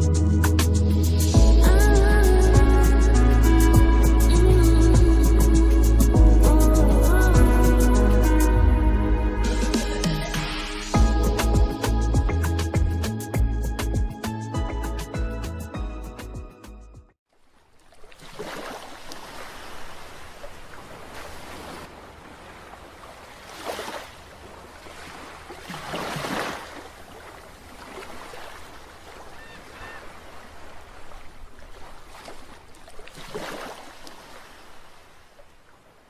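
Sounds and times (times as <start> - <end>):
small waves breaking on beach: 17.3 - 36.0.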